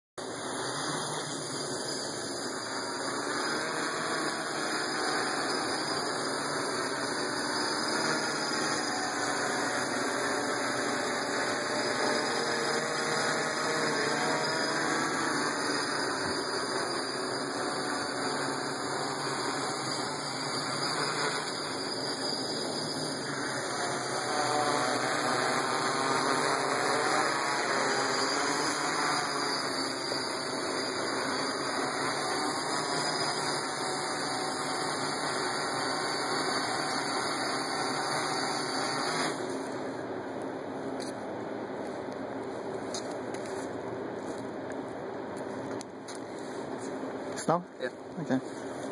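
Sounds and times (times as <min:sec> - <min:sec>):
drone propellers buzzing: 0:00.2 - 0:40.2.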